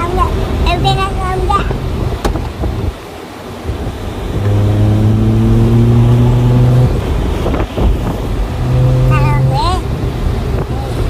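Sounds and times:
car engine accelerating: 0.0s - 3.0s, 3.6s - 11.0s
road noise rushing: 0.0s - 11.0s.

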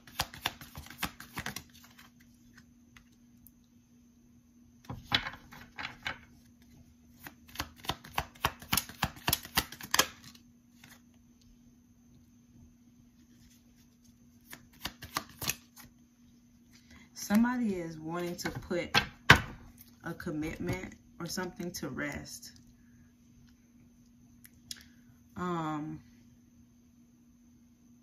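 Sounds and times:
cards being shuffled: 0.0s - 3.1s, 6.6s - 11.1s, 13.2s - 15.9s
faint steady hum: 0.0s - 28.0s.

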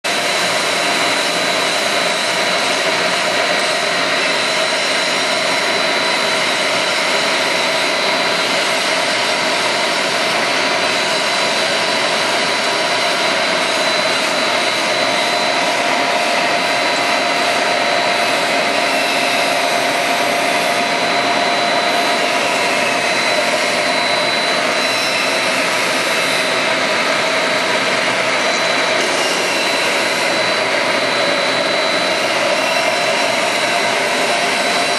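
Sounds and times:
high steady whine: 0.0s - 34.9s
machinery rushing hiss: 7.0s - 34.9s.

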